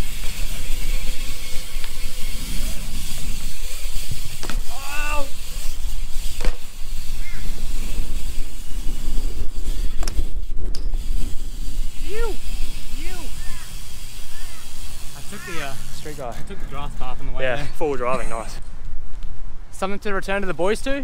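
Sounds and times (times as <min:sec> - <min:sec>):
bike tyres rolling on concrete: 0:00.0 - 0:19.4
wind buffeting microphone: 0:00.0 - 0:21.0
bike landing knock: 0:04.3 - 0:04.8, 0:06.3 - 0:06.8
person shouting: 0:04.7 - 0:05.3, 0:12.0 - 0:12.4, 0:14.4 - 0:15.8.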